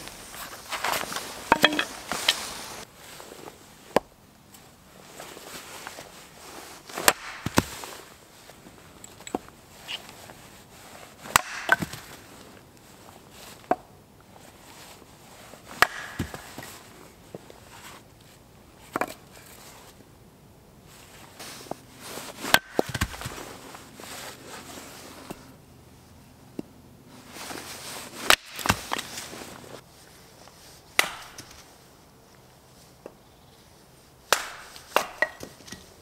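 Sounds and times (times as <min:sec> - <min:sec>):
hatchet chopping wood: 0:07.0 - 0:07.7, 0:11.3 - 0:12.1, 0:15.8 - 0:16.7, 0:22.5 - 0:23.3, 0:28.3 - 0:29.0, 0:31.0 - 0:31.6, 0:34.3 - 0:35.8.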